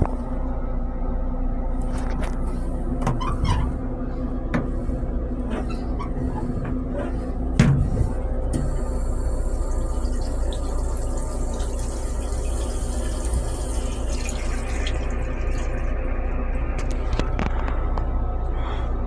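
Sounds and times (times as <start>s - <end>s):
steady low rumble: 0.0s - 19.0s
toilet flushing: 8.5s - 16.4s.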